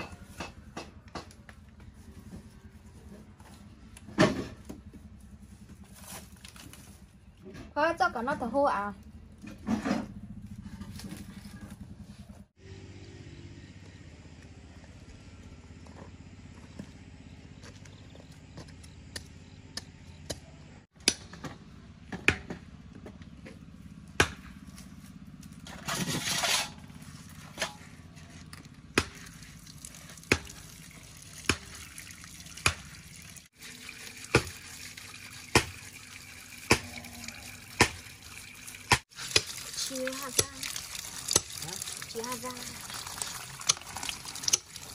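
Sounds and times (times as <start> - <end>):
water running from a tap: 29.3 - 44.9.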